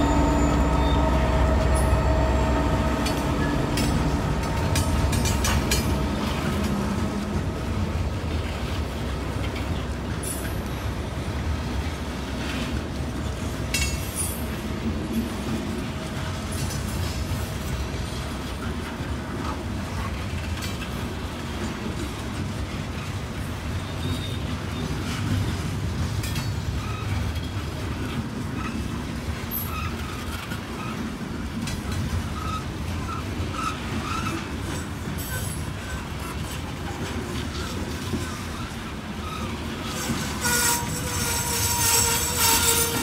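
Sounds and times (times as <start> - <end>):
train clanks: 0.0 - 43.0
train wheels rumbling on rail: 0.0 - 43.0.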